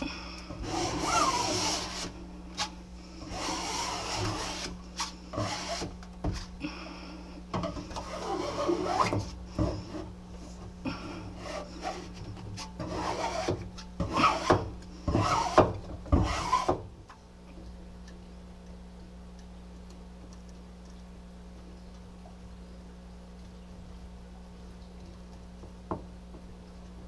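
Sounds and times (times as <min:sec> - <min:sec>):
faint steady hum: 0:00.0 - 0:27.0
plastic scraper scraping vinyl: 0:00.6 - 0:06.5, 0:07.9 - 0:10.1, 0:11.4 - 0:16.8.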